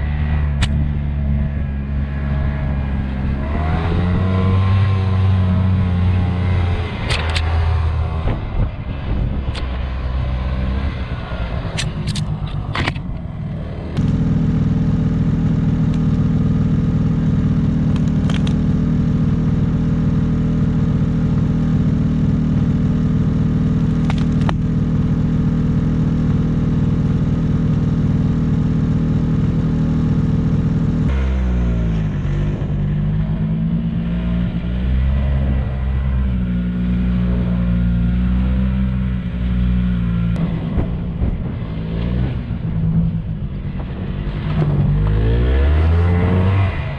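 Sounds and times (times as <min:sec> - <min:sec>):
snowmobile engine droning: 0:00.0 - 0:46.9
engine clicks: 0:17.9 - 0:18.6.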